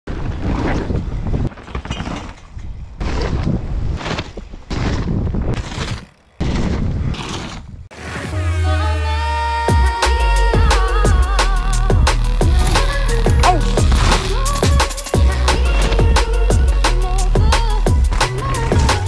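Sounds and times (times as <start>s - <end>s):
bike rattling and thudding: 0.1s - 7.9s, 12.4s - 19.0s
electronic music: 8.2s - 19.0s.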